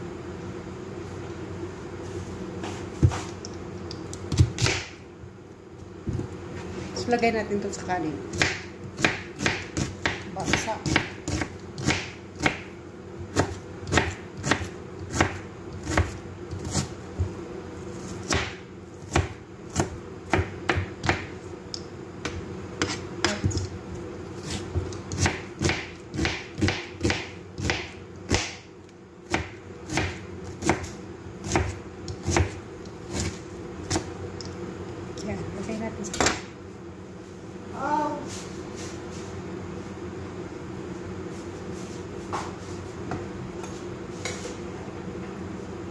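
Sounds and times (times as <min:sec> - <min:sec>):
steady low hum: 0:00.0 - 0:45.9
knife chopping on cutting board: 0:04.3 - 0:05.0, 0:08.3 - 0:12.7, 0:13.3 - 0:16.9, 0:18.2 - 0:21.3, 0:22.2 - 0:23.7, 0:24.4 - 0:28.6, 0:29.3 - 0:34.1.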